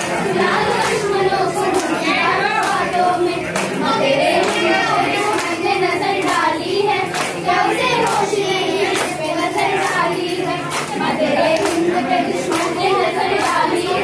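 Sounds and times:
children singing together: 0.0 - 14.0
hands clapping in rhythm: 0.0 - 14.0.

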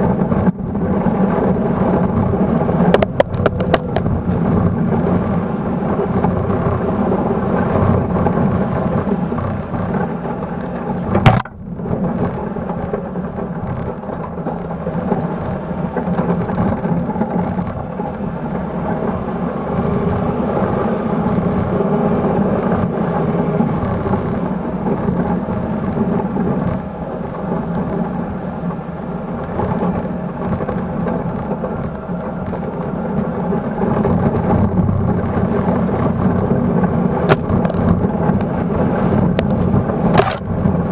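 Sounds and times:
snow rushing off plow blade: 0.0 - 40.9
truck engine running: 0.0 - 40.9
sharp knock: 11.2 - 11.6.

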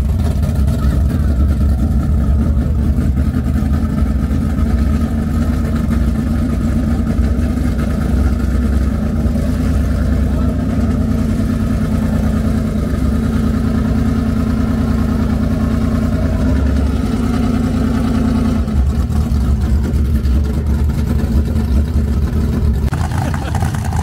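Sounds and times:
race car engines idling: 0.0 - 24.0.

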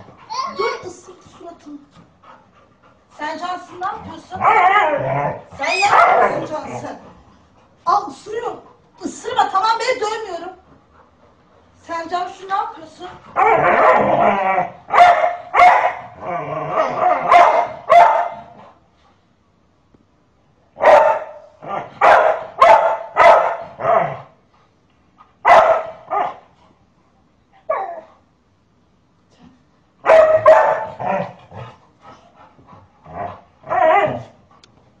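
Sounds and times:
dog barking: 5.8 - 6.5, 13.4 - 14.1, 14.9 - 16.2, 16.8 - 18.5, 20.8 - 23.8, 25.4 - 26.4, 30.0 - 31.0.

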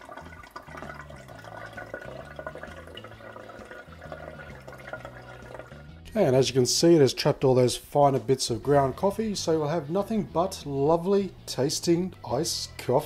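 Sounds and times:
coffee trickling into container: 0.0 - 5.9.

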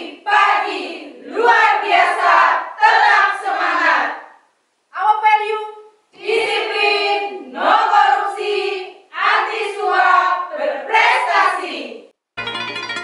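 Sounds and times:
women chanting in unison: 0.0 - 4.4, 6.1 - 12.1.

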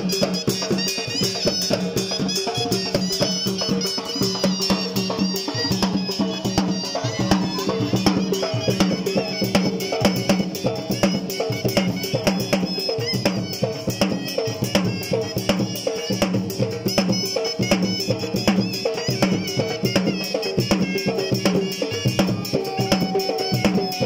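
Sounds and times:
barrel drum beaten with sticks: 0.0 - 24.0
melody line over drumming: 0.0 - 24.0.

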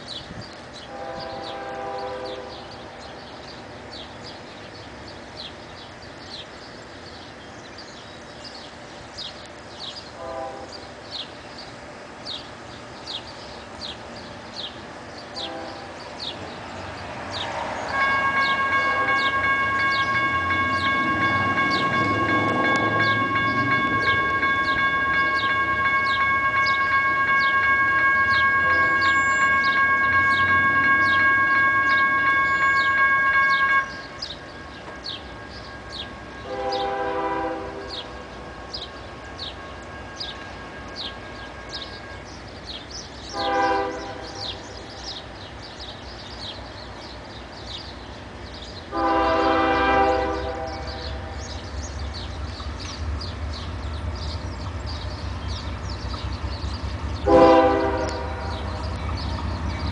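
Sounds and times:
train air horn: 0.9 - 2.8, 10.2 - 10.8, 15.4 - 16.3, 17.5 - 34.4, 35.9 - 38.8, 43.3 - 44.8, 48.9 - 51.5, 57.2 - 58.9.

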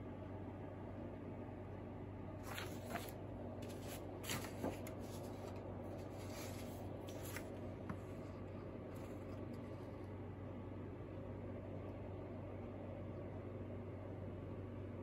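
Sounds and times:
steady low hum: 0.0 - 15.0
paper rustling and sliding: 2.4 - 9.8.

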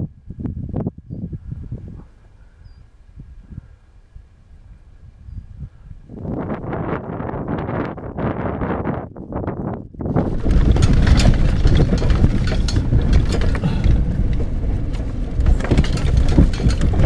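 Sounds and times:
wind on microphone: 0.0 - 17.0
vehicle body rattling and knocking: 10.1 - 17.0
vehicle driving over rocky track: 10.1 - 17.0.

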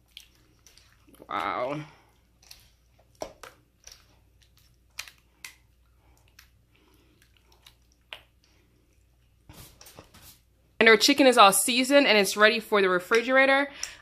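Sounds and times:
wet squelches of chicken in marinade: 0.0 - 10.5.

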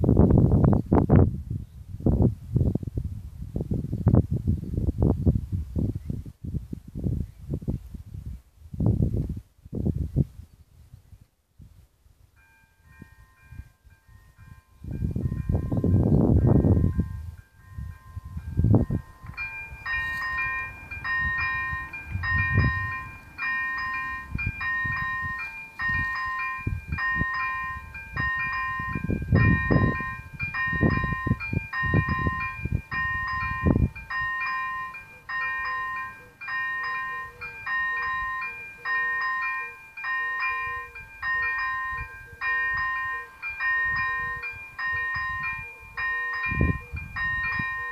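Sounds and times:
level crossing warning bell: 12.3 - 47.9.

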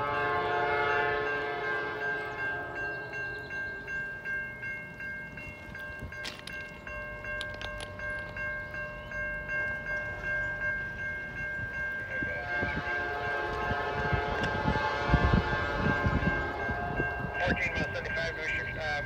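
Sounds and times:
train horn chord: 0.0 - 3.1, 12.1 - 18.7
level-crossing warning bell: 0.0 - 19.0
train rumble: 0.0 - 19.0.

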